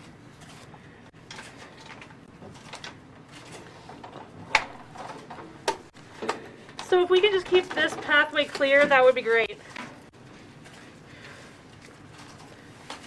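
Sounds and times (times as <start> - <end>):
paper envelopes rustling: 7.2 - 13.0.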